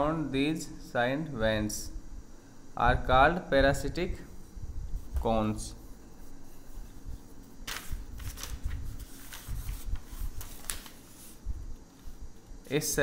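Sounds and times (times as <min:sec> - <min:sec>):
rustling: 0:04.9 - 0:12.5.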